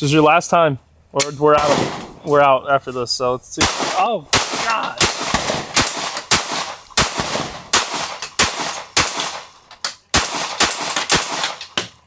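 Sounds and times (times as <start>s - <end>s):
pistol shots cracking: 1.5s - 2.2s, 3.6s - 12.0s.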